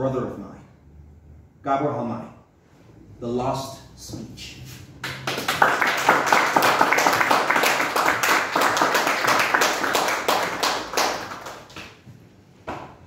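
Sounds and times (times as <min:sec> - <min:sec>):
audience clapping: 0:05.0 - 0:12.1.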